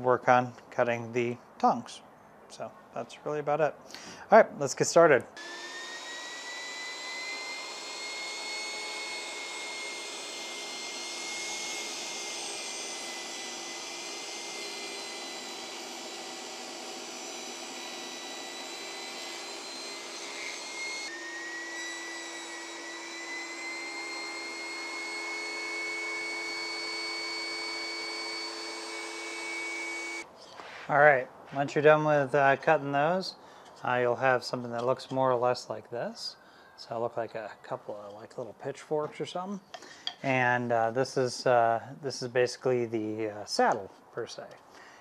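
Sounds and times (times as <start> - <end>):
table saw motor whining: 5.4 - 30.3.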